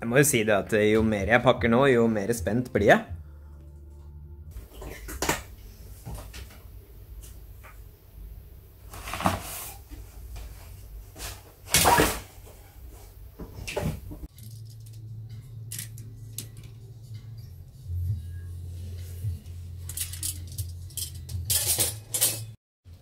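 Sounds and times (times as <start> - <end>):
bags rustling and scraping: 8.9 - 12.7.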